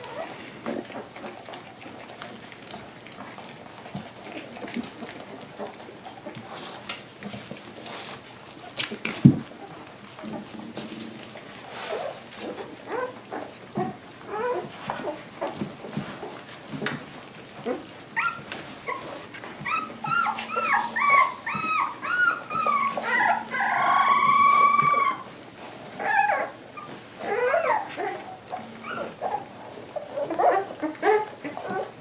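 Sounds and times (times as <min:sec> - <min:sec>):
puppies whining and squealing: 0:00.0 - 0:16.6, 0:17.4 - 0:32.0.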